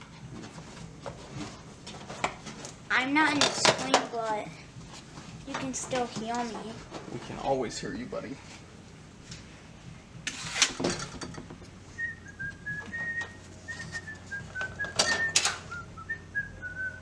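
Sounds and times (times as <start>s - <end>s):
person whistling a tune: 12.0s - 17.0s.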